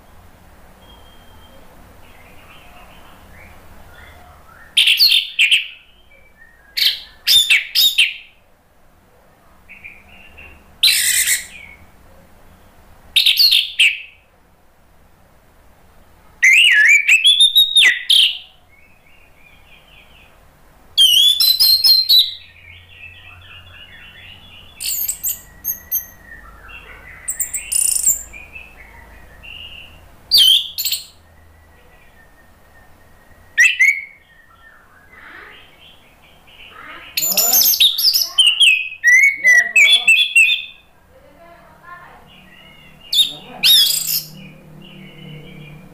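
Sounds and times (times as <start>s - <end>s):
bird chattering: 9.8s - 11.8s, 21.0s - 31.2s, 35.1s - 45.8s.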